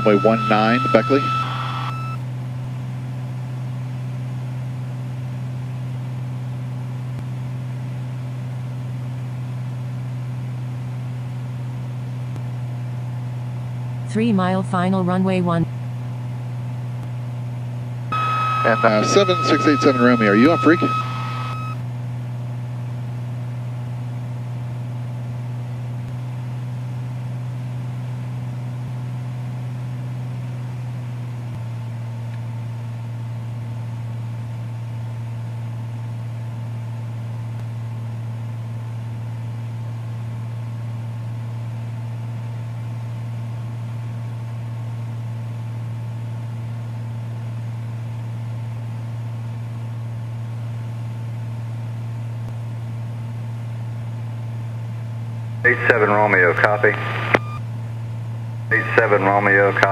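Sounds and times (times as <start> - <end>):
aircraft engine and propeller droning: 0.0 - 3.2, 18.1 - 21.8.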